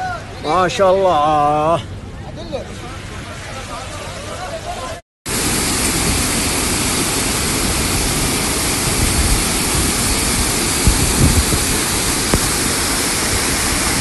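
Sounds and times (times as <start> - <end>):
flood water rushing: 2.5 - 14.0.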